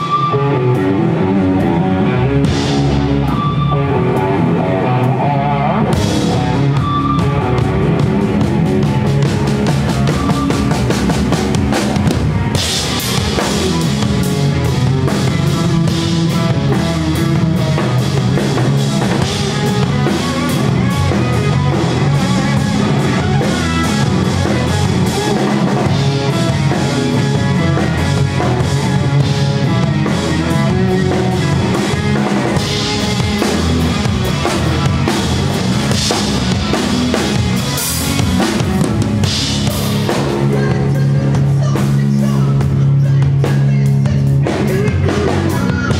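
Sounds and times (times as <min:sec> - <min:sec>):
rock band playing live: 0:00.0 - 0:45.9.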